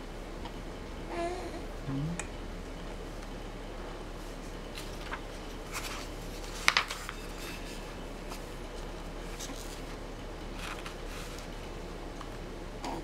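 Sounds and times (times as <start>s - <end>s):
book pages turning: 4.7s - 11.6s.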